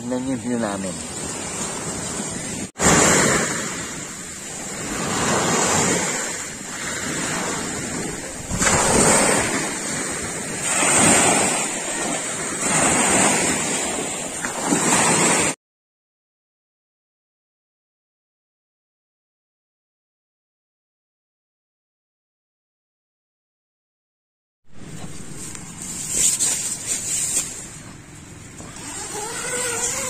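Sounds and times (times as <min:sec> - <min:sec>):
waves washing onto beach: 0:00.0 - 0:15.6.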